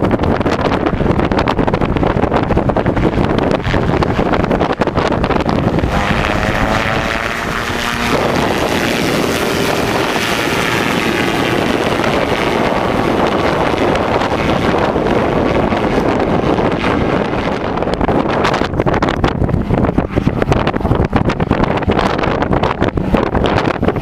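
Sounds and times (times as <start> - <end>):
wind buffeting microphone: 0.0 - 24.0
gyroplane engine droning past: 5.3 - 15.0.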